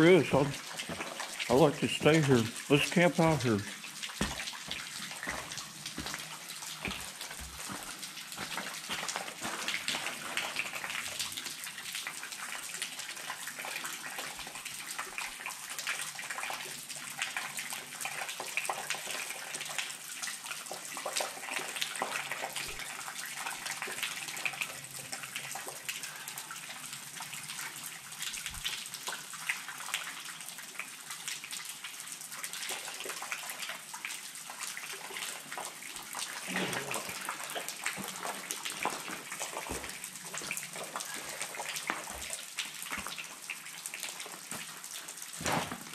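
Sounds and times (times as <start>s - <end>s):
water trickling and dripping: 0.0s - 45.9s.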